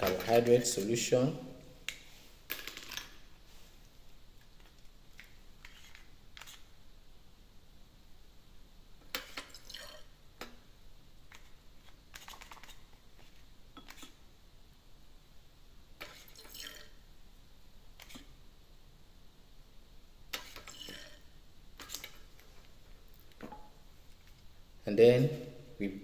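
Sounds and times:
liquid dispensed into glass tubes: 9.1 - 10.1, 16.0 - 17.0.

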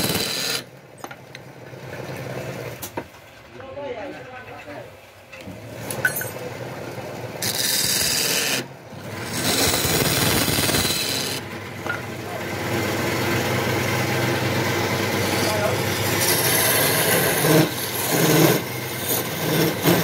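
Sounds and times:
lathe tool scraping wood: 0.0 - 0.7, 7.4 - 11.6, 12.5 - 20.0
lathe motor hum: 6.6 - 20.0.

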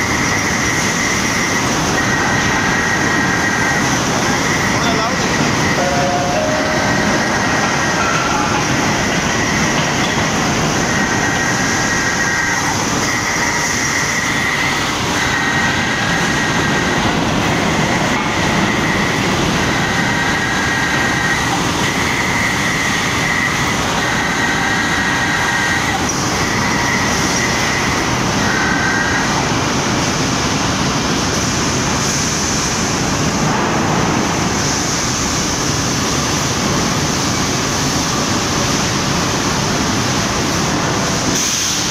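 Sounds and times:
rolling mill industrial din: 0.0 - 41.3
high squealing tone: 0.2 - 10.2.

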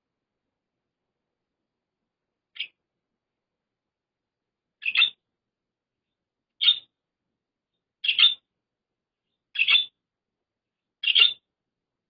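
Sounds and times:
budgerigar chirping: 2.5 - 2.8, 4.8 - 5.2, 6.6 - 7.0, 8.0 - 8.5, 9.4 - 10.0, 11.0 - 11.5.

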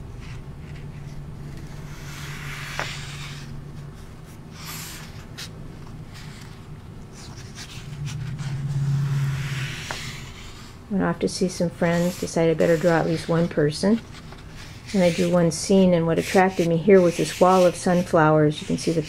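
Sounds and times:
low steady hum: 0.0 - 19.0
paper pages rustling: 11.9 - 15.5.

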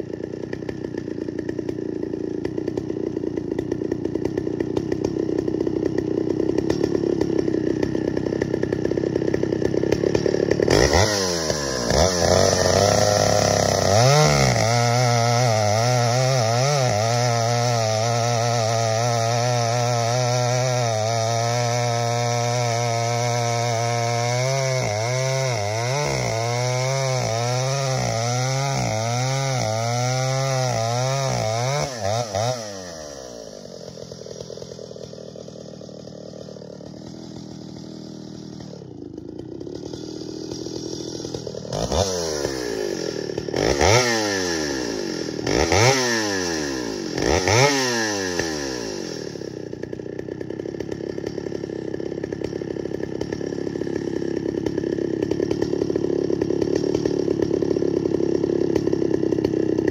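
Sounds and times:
chainsaw running: 0.0 - 59.9.

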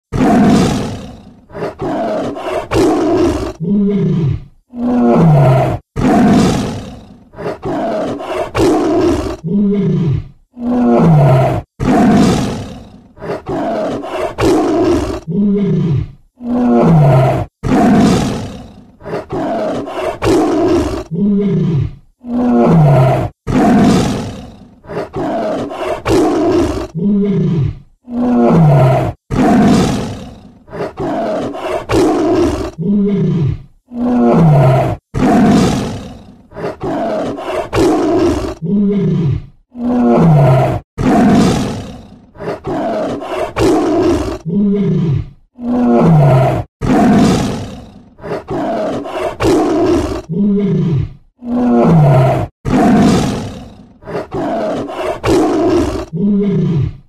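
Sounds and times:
tiger growling: 0.1 - 57.0
tiger roaring: 0.1 - 57.0.

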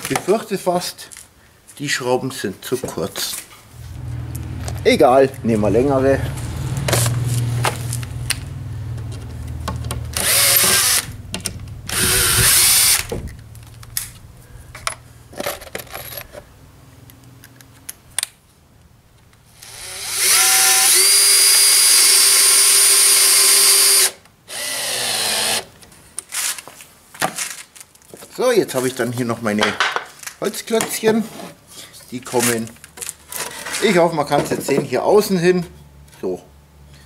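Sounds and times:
cordless drill whine: 10.2 - 11.2, 11.9 - 13.2, 19.6 - 25.7.

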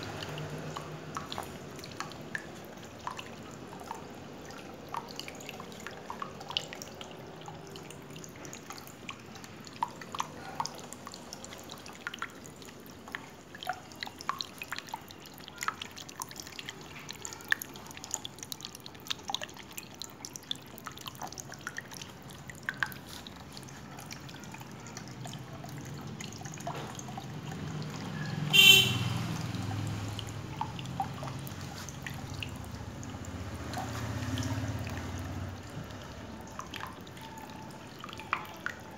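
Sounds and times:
fountain water dripping and trickling: 0.0 - 38.9
honk-like tone: 28.5 - 29.1.

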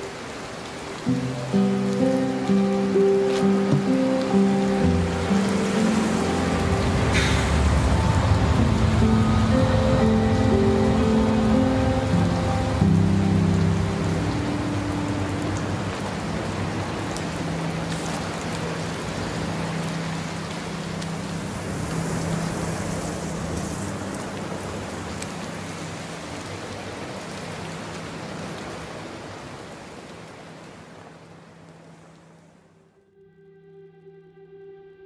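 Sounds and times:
rain pattering: 0.0 - 32.7
low steady drone: 1.1 - 25.8, 32.8 - 35.0.

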